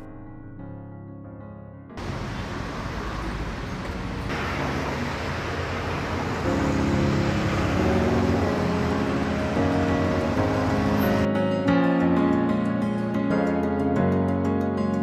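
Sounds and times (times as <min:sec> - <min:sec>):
background music: 0:00.0 - 0:02.0, 0:06.1 - 0:15.0
passing cars: 0:02.0 - 0:11.3.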